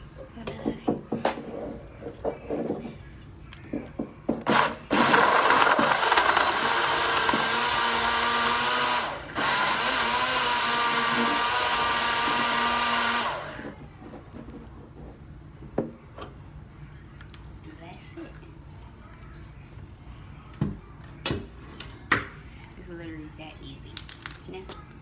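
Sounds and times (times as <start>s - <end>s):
blender motor whine: 4.5s - 13.7s.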